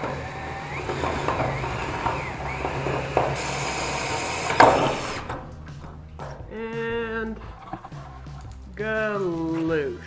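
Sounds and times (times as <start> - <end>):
cordless drill boring through metal: 0.0 - 6.0
sharp knocks: 0.0 - 8.6.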